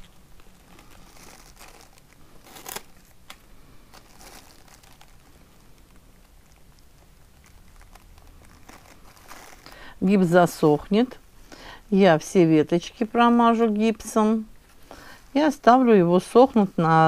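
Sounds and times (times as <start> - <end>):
cling film crinkling and rustling: 0.0 - 9.9.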